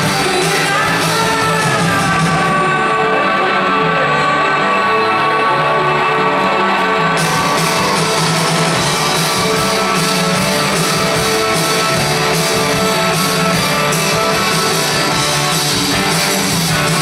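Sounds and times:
live rock band playing: 0.0s - 17.0s.

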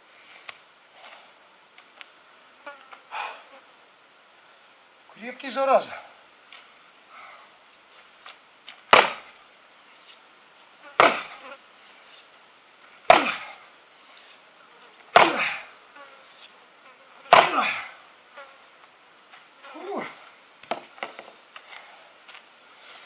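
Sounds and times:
axe chopping wood: 8.9s - 9.3s, 11.0s - 11.4s, 13.1s - 13.5s, 15.1s - 15.6s, 17.3s - 17.8s.

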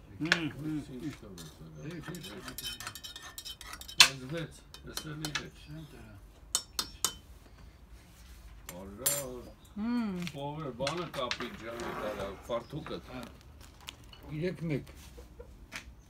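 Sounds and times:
metal spoon clinking in pot: 2.1s - 5.4s.

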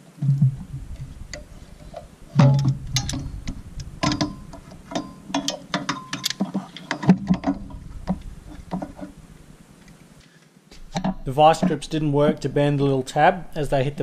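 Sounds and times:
locking pliers clanking on metal: 2.4s - 7.7s.

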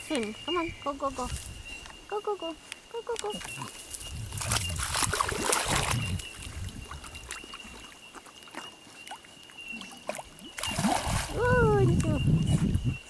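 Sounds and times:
dog paddling and splashing: 3.2s - 12.8s.

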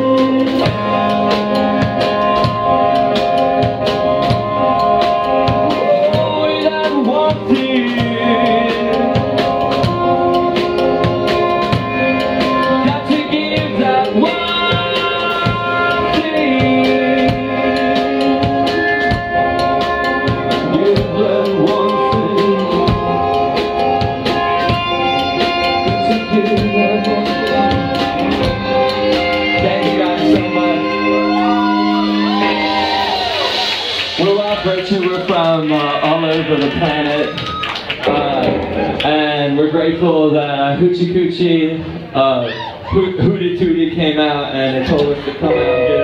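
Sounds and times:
man singing into microphone: 0.0s - 1.0s, 5.6s - 9.4s, 12.8s - 18.9s, 20.6s - 23.5s, 25.8s - 28.0s, 29.4s - 31.3s, 43.0s - 46.0s
drum kit beat: 0.0s - 39.4s
electric guitar: 0.0s - 39.7s, 44.5s - 46.0s.

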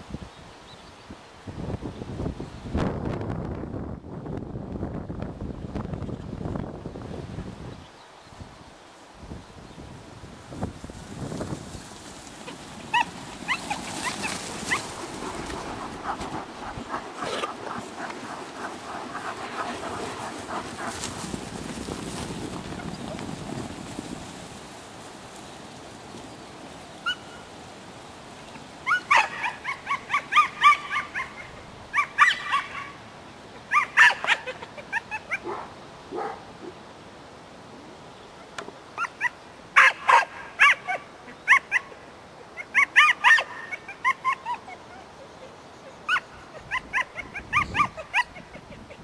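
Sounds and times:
dog yipping: 12.9s - 14.9s, 28.9s - 32.9s, 33.7s - 35.6s, 39.0s - 41.9s, 42.6s - 45.1s, 46.1s - 48.5s.

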